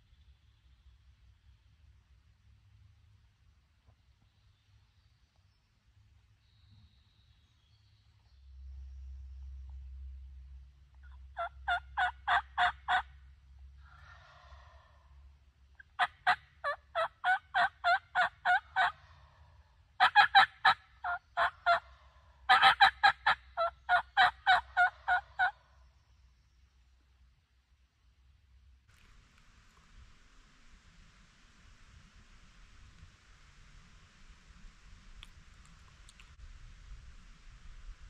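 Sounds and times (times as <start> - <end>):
hen turkey yelps: 11.0 - 13.2, 15.8 - 19.1, 20.0 - 25.6
faint hazy sound: 25.5 - 38.0.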